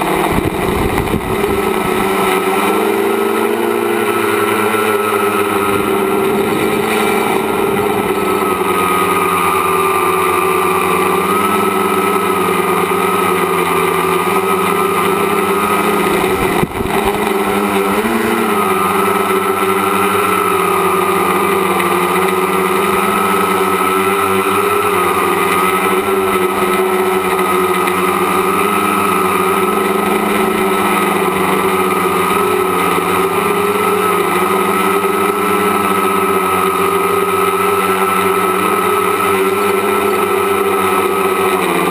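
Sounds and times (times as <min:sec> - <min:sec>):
drone motors and propellers whining: 0:00.0 - 0:41.9.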